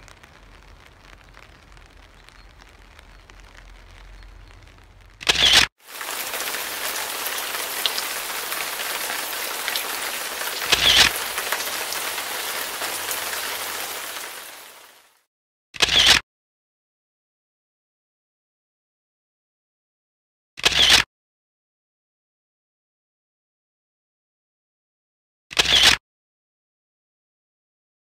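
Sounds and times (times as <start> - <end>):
heavy rain falling: 0.0 - 15.2.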